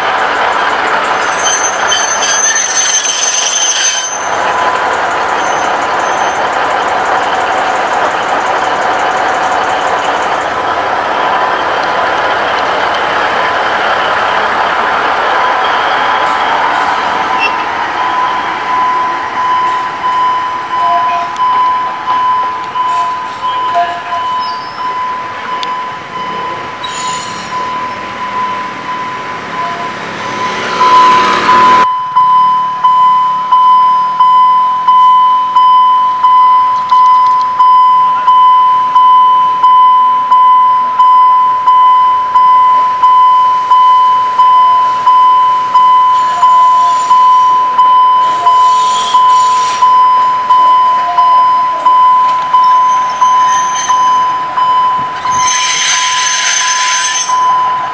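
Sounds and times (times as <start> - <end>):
rushing noise: 0.0 - 31.9
level-crossing warning signal: 0.0 - 57.9.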